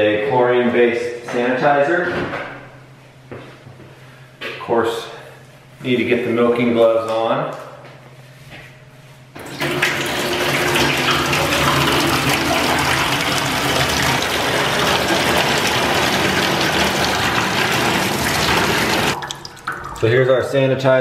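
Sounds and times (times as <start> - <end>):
water running from faucet into sink: 9.4 - 20.1.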